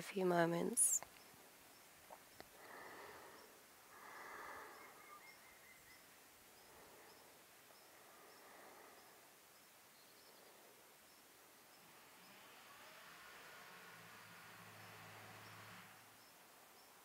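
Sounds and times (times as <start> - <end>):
soft breaths: 2.0 - 17.0
faint high ticks: 2.1 - 2.6.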